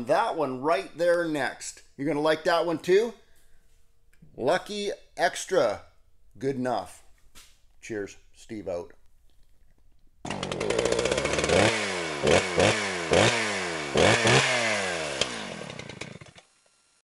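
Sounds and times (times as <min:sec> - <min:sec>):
small petrol engine revving: 0:10.2 - 0:17.0.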